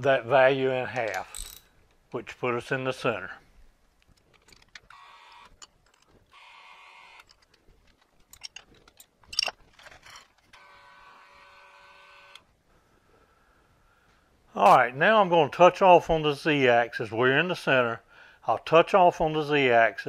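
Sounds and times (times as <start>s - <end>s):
metal tooling clinking: 1.0s - 1.8s, 4.1s - 6.4s, 7.1s - 10.5s.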